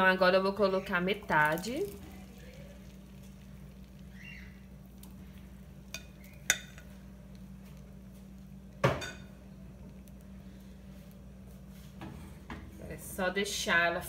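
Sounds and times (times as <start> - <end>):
eggs sizzling in pan: 0.0 - 12.2
steady low hum: 0.0 - 14.0
kitchenware knock: 8.8 - 9.2.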